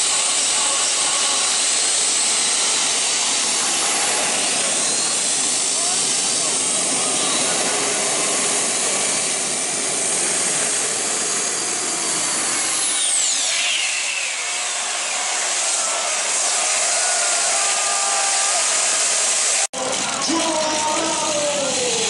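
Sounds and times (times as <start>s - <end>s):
high whine falling in pitch: 0.0s - 22.0s
turbine roar and hiss: 0.0s - 22.0s.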